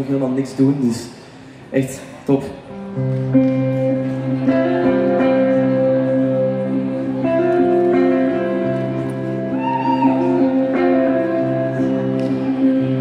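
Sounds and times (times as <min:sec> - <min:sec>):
electric guitar: 0:02.6 - 0:13.0
keyboard playing held chords: 0:02.8 - 0:13.0.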